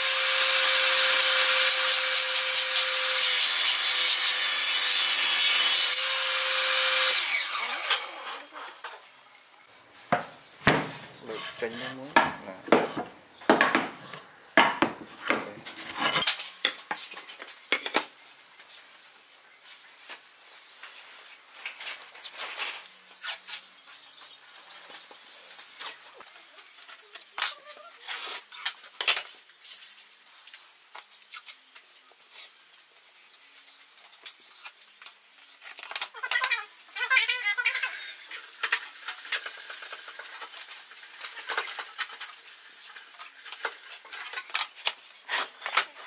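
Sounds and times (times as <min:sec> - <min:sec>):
wooden boards knocking: 0:10.1 - 0:11.2, 0:12.1 - 0:15.6.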